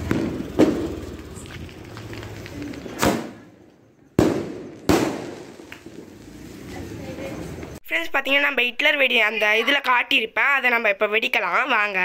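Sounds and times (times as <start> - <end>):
firecrackers banging: 0.0 - 7.8.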